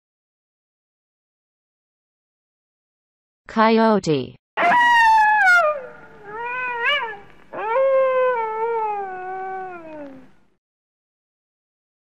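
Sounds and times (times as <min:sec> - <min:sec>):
coyote howling: 0:04.6 - 0:10.4.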